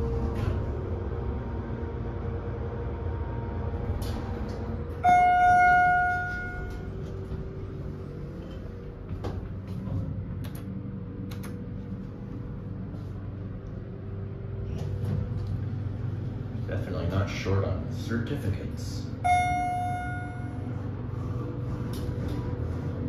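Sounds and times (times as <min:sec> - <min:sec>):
elevator doors sliding open: 0:00.0 - 0:17.4, 0:19.1 - 0:23.0
elevator hum: 0:00.0 - 0:23.0
elevator arrival chime: 0:04.0 - 0:09.0, 0:19.0 - 0:22.3.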